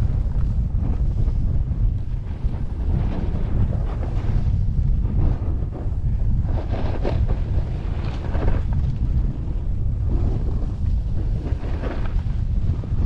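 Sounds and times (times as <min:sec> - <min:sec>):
wind buffeting microphone: 0:00.0 - 0:13.0
snowboard edge scraping snow: 0:02.1 - 0:13.0.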